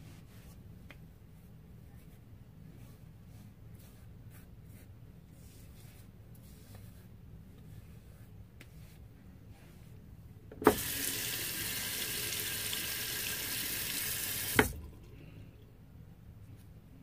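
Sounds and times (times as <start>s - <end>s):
water running into sink: 10.6s - 15.1s.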